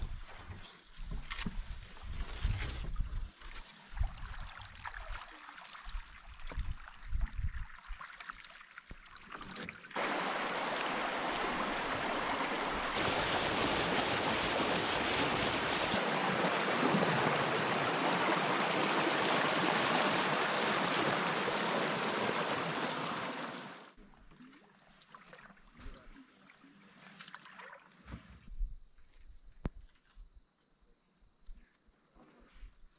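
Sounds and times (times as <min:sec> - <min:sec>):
water rushing over rocks: 0:10.0 - 0:24.0.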